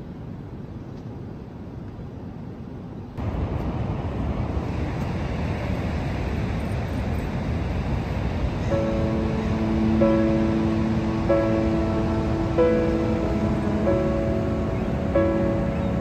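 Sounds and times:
low rumbling noise: 0.0 - 16.0
wind rumbling on microphone: 0.0 - 16.0
ocean surf breaking: 3.2 - 16.0.

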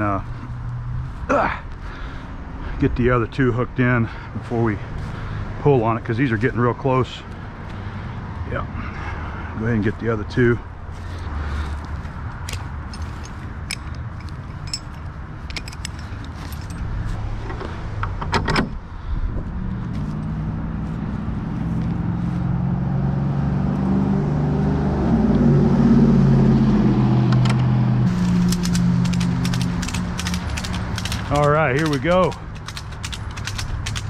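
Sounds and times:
metal buckles clinking: 11.8 - 18.8, 28.1 - 34.0
ratchet clicks: 28.2 - 34.0.

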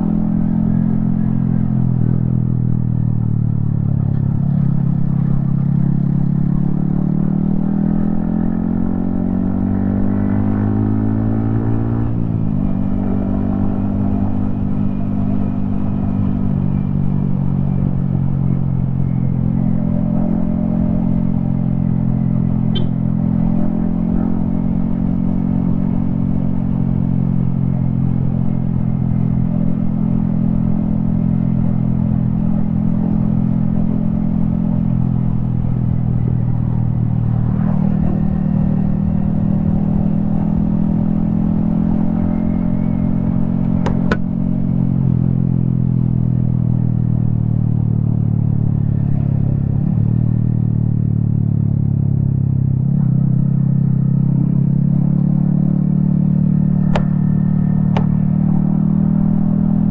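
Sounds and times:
motorcycle engine running: 12.4 - 52.8, 56.1 - 59.9
sharp click: 56.9 - 57.2.

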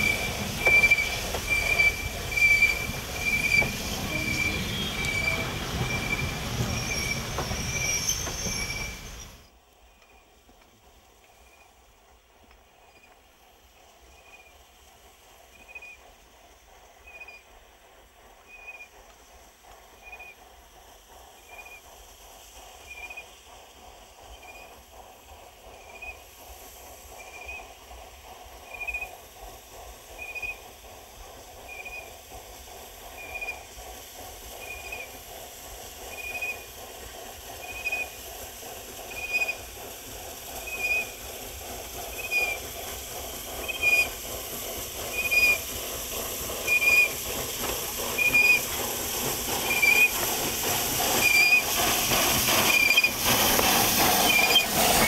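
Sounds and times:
short high squeak: 0.0 - 9.5
steam locomotive chuffing: 0.0 - 55.0.

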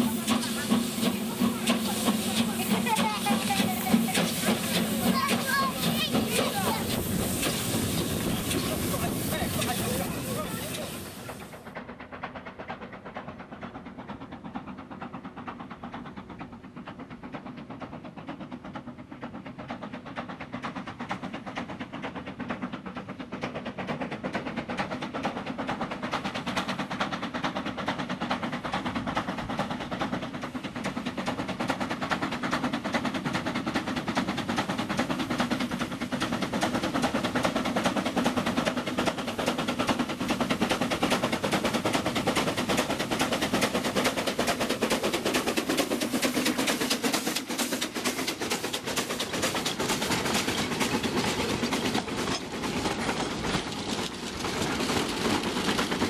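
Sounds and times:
steam hiss: 0.0 - 11.8, 23.7 - 56.0
steam locomotive exhaust beats: 0.0 - 56.0.

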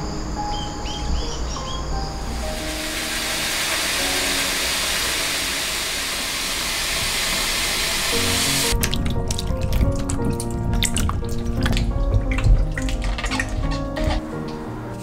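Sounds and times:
tap water pouring into basin: 2.6 - 14.2.

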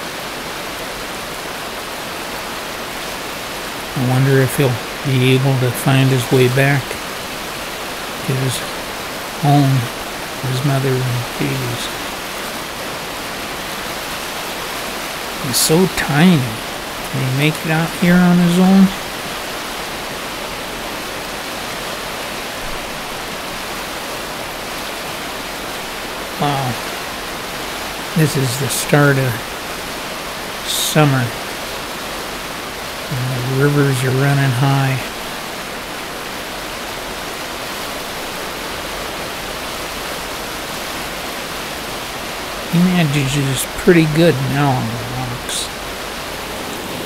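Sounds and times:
fast river rushing: 0.0 - 47.0.

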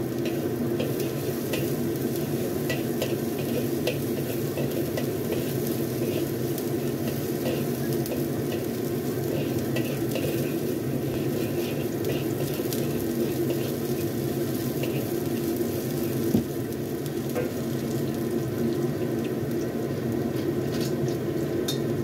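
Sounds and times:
garlic sizzling in oil: 0.0 - 22.0
metal spatula scraping wok: 0.2 - 16.2.

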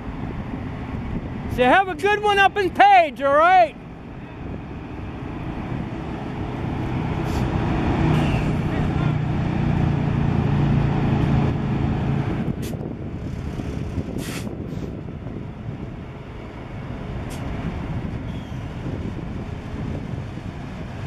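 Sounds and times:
locomotive humming: 0.0 - 21.0
locomotive rumbling: 0.0 - 21.0
short hisses: 7.2 - 8.5, 14.2 - 14.9.

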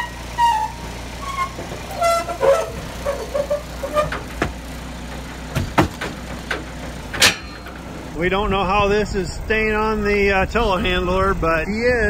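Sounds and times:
telehandler engine running: 0.0 - 12.0
sharp metal knocks: 1.4 - 8.2.

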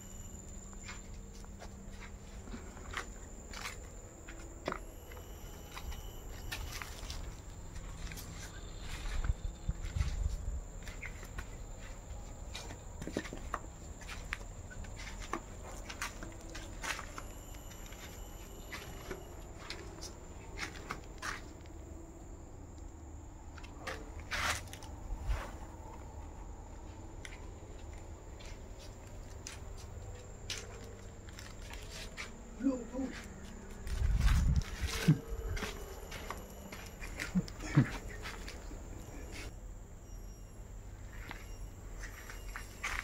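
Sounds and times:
faint high-pitched tone: 0.0 - 9.9, 15.6 - 20.6, 34.5 - 43.0
footsteps on dry leaves: 33.8 - 37.1.

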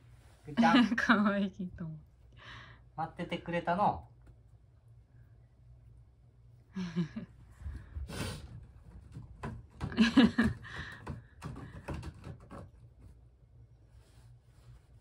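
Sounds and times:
cat scratching rope post: 8.1 - 13.4.

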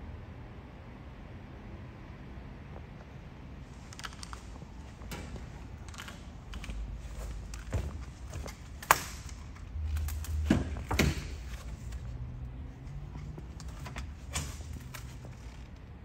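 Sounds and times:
footsteps: 3.7 - 15.6
handling noise clicks and thumps: 3.8 - 15.8.

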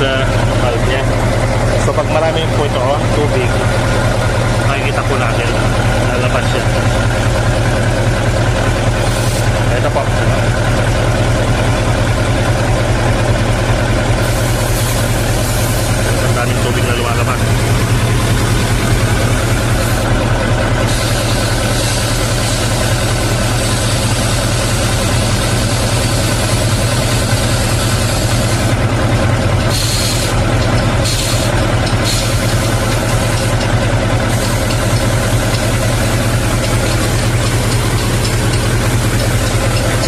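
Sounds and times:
diesel engine idling: 0.0 - 40.0
compressed air hissing: 9.0 - 9.6, 14.2 - 16.1, 19.3 - 20.1, 20.8 - 25.0, 29.7 - 30.4, 31.0 - 33.5.

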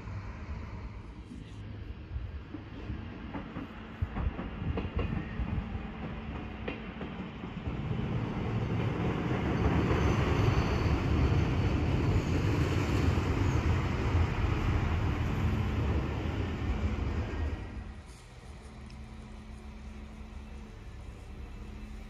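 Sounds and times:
railcar engine and wheels rumbling: 0.0 - 22.0
faint high squeal: 8.9 - 14.2.

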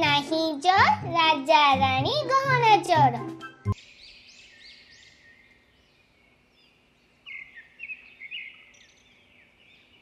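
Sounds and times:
songbirds chirping: 2.7 - 10.0.

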